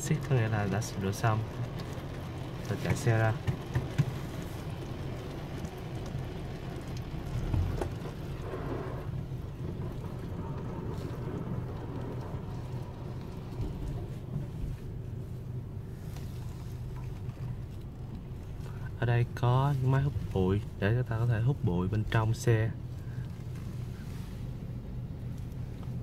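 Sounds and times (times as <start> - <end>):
light ticks of water: 0.0 - 15.2, 16.1 - 21.2, 21.9 - 24.1, 25.2 - 26.0
low car engine and road hum: 0.0 - 26.0.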